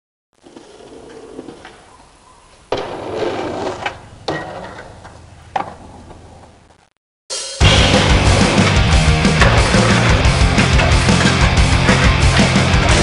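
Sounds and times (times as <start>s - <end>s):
skateboard wheels rolling: 0.4s - 2.0s, 2.6s - 6.7s
skateboard clacking on ground: 2.7s - 6.2s.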